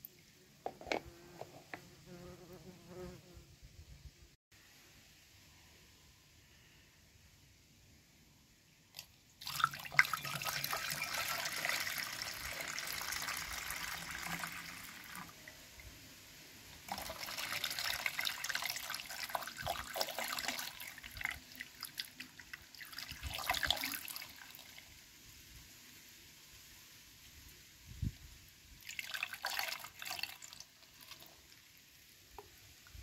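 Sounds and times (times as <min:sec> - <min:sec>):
liquid pouring and splashing: 0:09.0 - 0:15.9, 0:16.7 - 0:24.8, 0:28.8 - 0:32.5.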